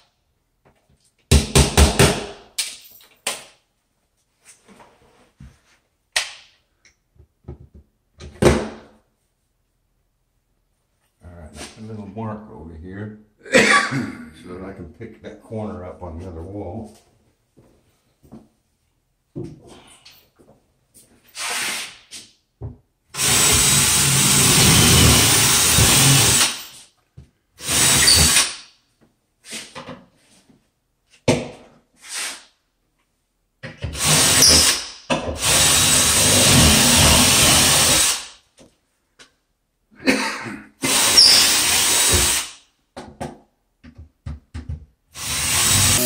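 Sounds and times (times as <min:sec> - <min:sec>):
cordless drill running: 0:23.2 - 0:26.6, 0:27.6 - 0:28.4, 0:34.0 - 0:34.8, 0:35.4 - 0:38.3, 0:40.8 - 0:42.5, 0:45.2 - 0:46.0.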